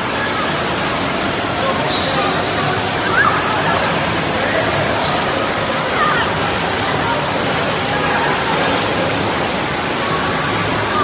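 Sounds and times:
running water rushing: 0.0 - 11.0
children's voices and shouts: 2.6 - 8.9, 10.0 - 11.0.

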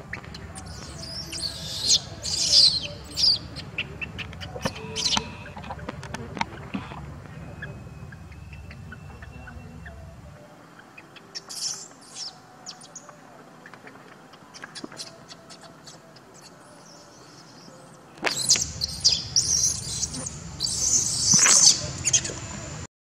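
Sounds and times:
low rumbling noise: 0.0 - 10.8, 18.0 - 22.9
baby monkey squeaking: 0.4 - 5.9, 7.5 - 10.1, 11.3 - 13.0, 18.3 - 22.4.

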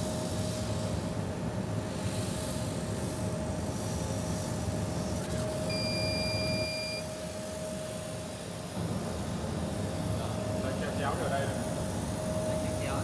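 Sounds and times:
high electronic beep: 5.7 - 7.0.

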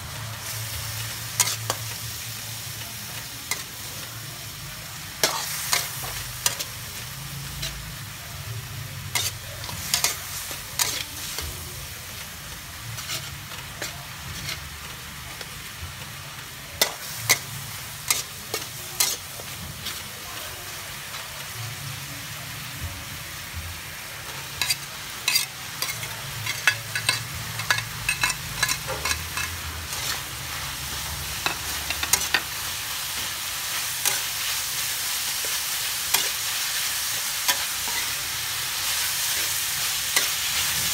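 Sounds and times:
meat sizzling in a wok: 0.0 - 40.9
metal spatula scraping wok: 9.1 - 10.2, 12.9 - 14.8, 24.5 - 30.4.

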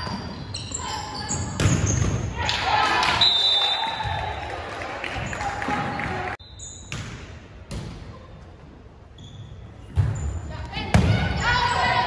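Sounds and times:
voices in a gym: 10.4 - 12.0.

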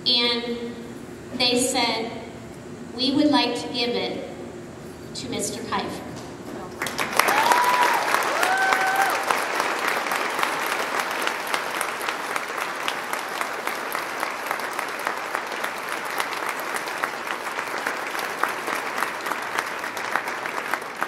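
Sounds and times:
large audience applauding: 6.8 - 21.0.

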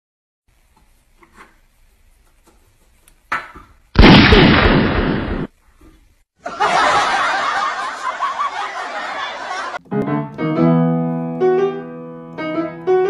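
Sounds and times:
gunshot bang: 4.0 - 5.5.

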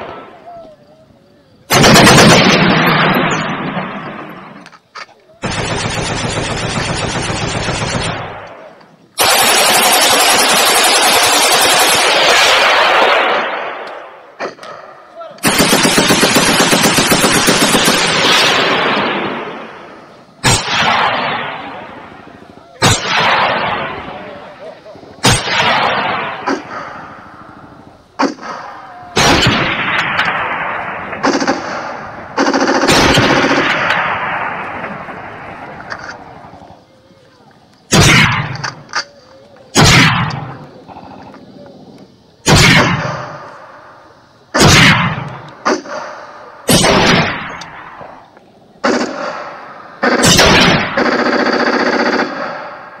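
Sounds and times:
rapid gunfire burst: 1.7 - 4.1, 5.4 - 8.4, 9.2 - 13.6, 15.4 - 19.7, 22.8 - 24.1, 25.2 - 27.0, 29.2 - 35.3, 37.9 - 38.6, 39.8 - 40.5, 44.6 - 46.1, 46.7 - 47.5, 48.8 - 52.8
loud gunshots: 1.7 - 4.6, 5.4 - 22.2, 22.8 - 24.5, 25.2 - 27.3, 28.2 - 35.7, 37.9 - 38.8, 39.7 - 40.6, 42.4 - 43.5, 44.5 - 48.0, 48.8 - 53.0
gunshot bangs: 20.4 - 21.9, 22.8 - 24.2, 25.2 - 27.2, 28.2 - 32.2, 37.9 - 38.8, 39.8 - 40.5, 42.4 - 43.5, 44.6 - 48.0, 48.9 - 51.0.

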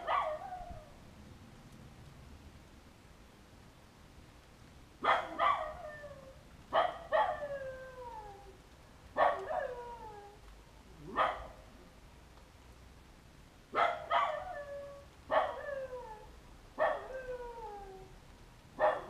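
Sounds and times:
dog barking and howling: 0.0 - 0.9, 5.0 - 10.4, 11.0 - 11.7, 13.8 - 18.1, 18.8 - 19.0.

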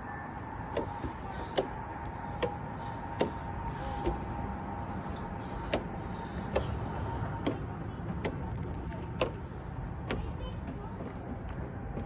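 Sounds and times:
footsteps on wooden stairs: 0.6 - 4.4, 5.2 - 12.0.

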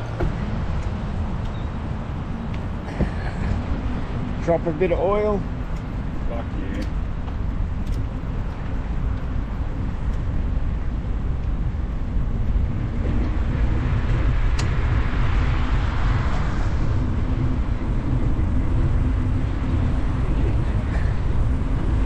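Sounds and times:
wind rumbling on microphone: 0.0 - 22.0
car passing with tyre hiss: 12.9 - 22.0.

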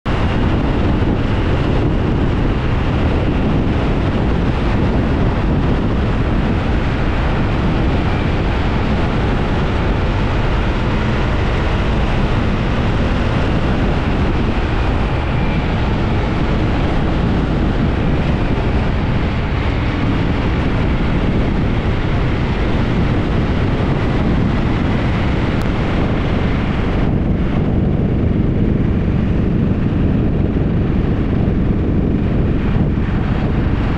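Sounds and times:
wind rushing on microphone: 0.0 - 33.9
motorcycle engine running: 0.1 - 33.9.

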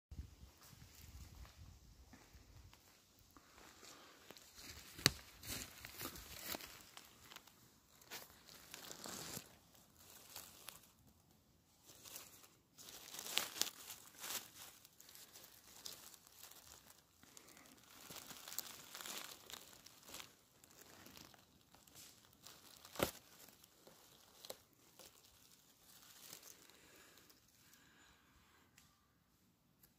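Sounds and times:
dry leaves rustling and crackling: 3.6 - 27.4.

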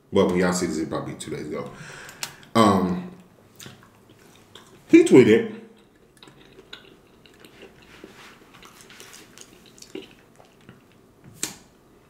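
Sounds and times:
person chewing food: 3.5 - 4.9, 5.7 - 11.2.

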